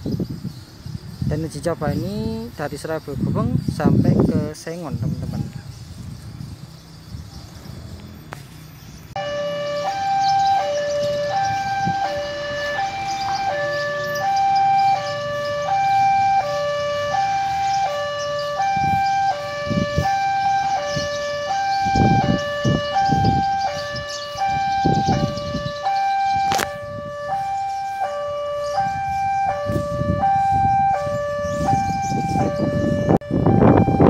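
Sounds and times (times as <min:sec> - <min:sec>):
level crossing alarm two-tone: 0:09.2 - 0:34.0.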